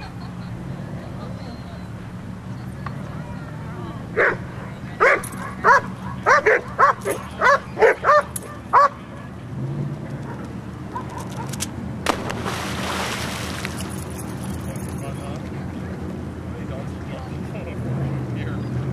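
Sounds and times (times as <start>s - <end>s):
dog barking: 4.2s - 4.4s, 5.0s - 9.0s
splash into water: 12.1s - 14.3s.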